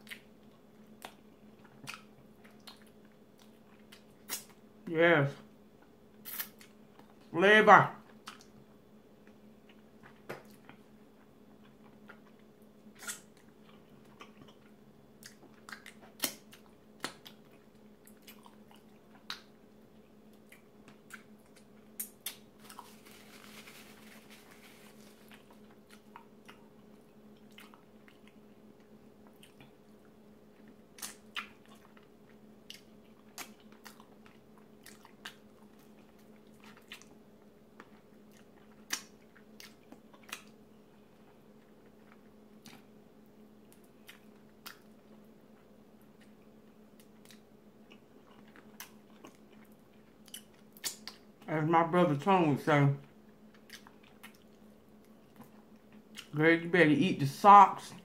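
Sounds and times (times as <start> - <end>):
person chewing: 0.0 - 4.6, 5.8 - 7.2, 9.2 - 42.9, 43.7 - 51.3, 53.5 - 56.3
faint steady hum: 0.0 - 58.0
wet mouth clicks and smacks: 14.2 - 17.4, 31.0 - 31.9, 37.8 - 40.5, 43.7 - 44.9, 47.0 - 51.2, 53.5 - 54.6.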